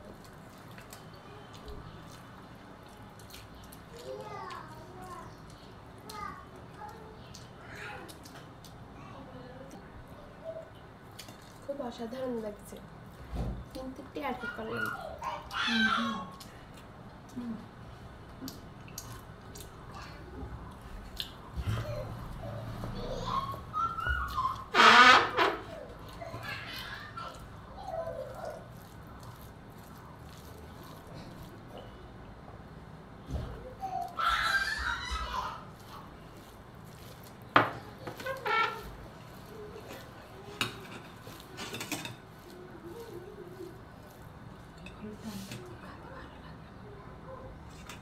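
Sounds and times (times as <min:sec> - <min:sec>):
person chewing: 0:00.0 - 0:04.8, 0:11.0 - 0:11.6, 0:18.3 - 0:19.9, 0:20.7 - 0:21.4, 0:27.3 - 0:32.3, 0:35.6 - 0:44.8
rice squishing by hand: 0:00.0 - 0:08.9, 0:23.2 - 0:46.1.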